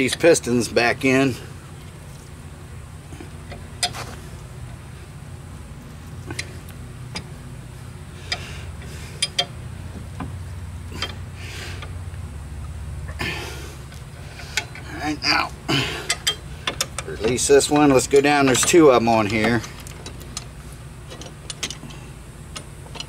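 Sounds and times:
low hum: 0:00.0 - 0:23.0
metallic clicks and knocks: 0:09.2 - 0:10.4, 0:16.0 - 0:20.5, 0:21.1 - 0:21.9, 0:22.5 - 0:23.0.

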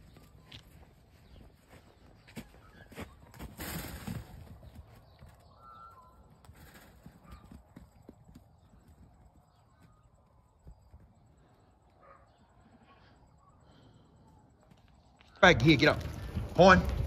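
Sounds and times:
sheep hooves trotting on grass: 0:00.0 - 0:11.5.

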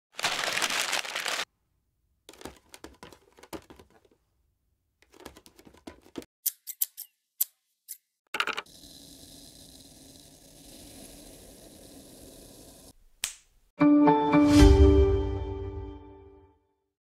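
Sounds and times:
paper rustling: 0:00.1 - 0:01.5.

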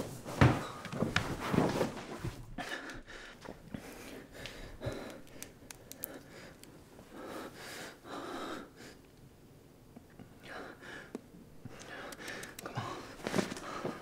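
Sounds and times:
man breathing heavily: 0:02.4 - 0:09.1, 0:10.2 - 0:14.0
man gasping and sniffing: 0:10.7 - 0:14.0.

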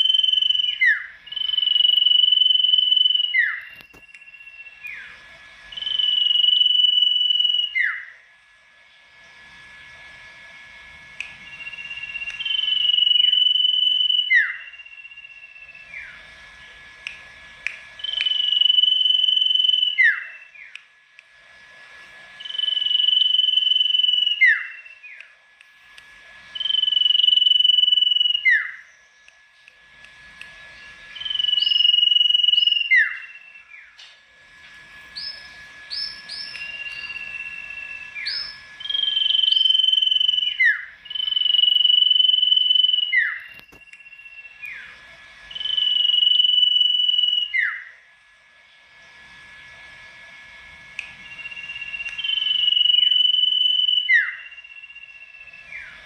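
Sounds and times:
songbird singing whistled phrases: 0:00.0 - 0:08.2, 0:11.3 - 0:16.2, 0:18.0 - 0:20.8, 0:22.4 - 0:25.3, 0:26.5 - 0:29.4, 0:31.1 - 0:34.0, 0:35.1 - 0:48.0, 0:51.0 - 0:56.0.

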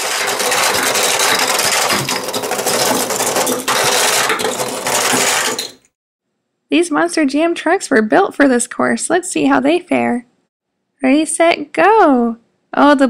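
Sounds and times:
toy trucks rattling down plastic track: 0:00.0 - 0:05.9.

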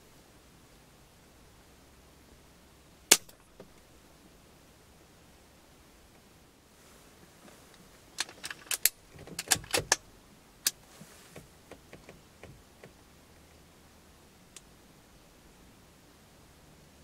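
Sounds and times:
sharp clicks and metallic rattles: 0:08.2 - 0:10.0.

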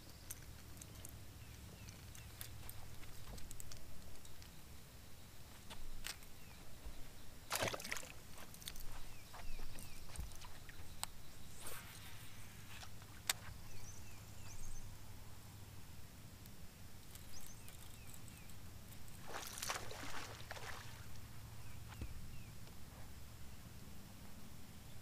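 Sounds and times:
fish splashing into water: 0:07.5 - 0:08.2, 0:19.2 - 0:21.0
water lapping: 0:19.2 - 0:21.2.

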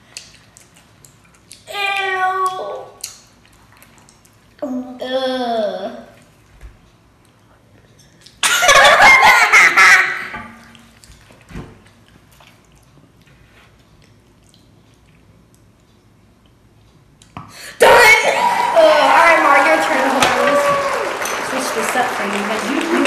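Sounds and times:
child's wordless outburst: 0:01.7 - 0:03.1, 0:17.8 - 0:21.0.

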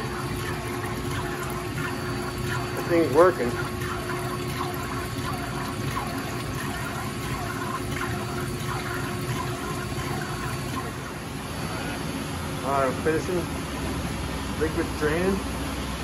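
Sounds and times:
oil splashing and trickling: 0:00.0 - 0:11.1.

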